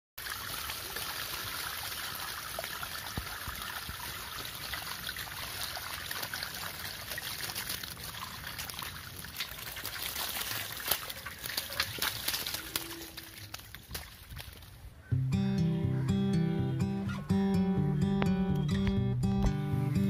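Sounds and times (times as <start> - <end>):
water splashing on wet ground: 0.2 - 14.8.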